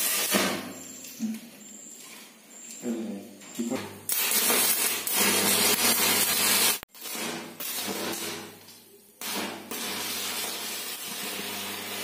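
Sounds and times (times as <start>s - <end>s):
welding arc crackling and hissing: 0.0s - 0.6s, 4.1s - 12.0s.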